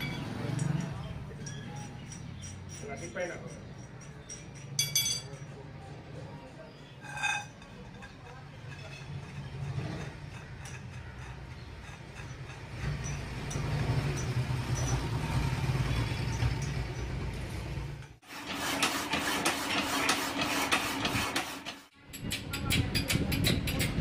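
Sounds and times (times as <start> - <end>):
workshop machinery hum: 0.0 - 23.8
power hacksaw cutting steel: 18.2 - 21.8.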